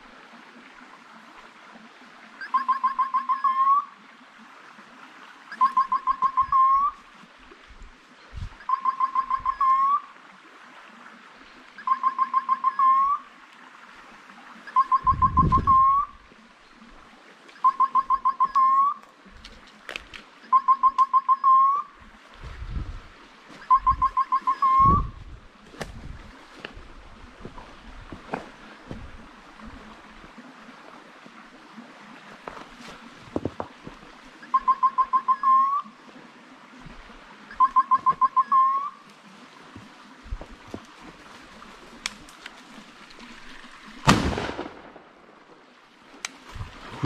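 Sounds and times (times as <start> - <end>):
electronic beeper chirps: 2.4 - 3.8, 5.5 - 6.9, 8.6 - 10.0, 11.8 - 13.2, 14.7 - 16.1, 17.6 - 19.0, 20.4 - 21.8, 23.6 - 25.1, 34.4 - 35.9, 37.5 - 38.9.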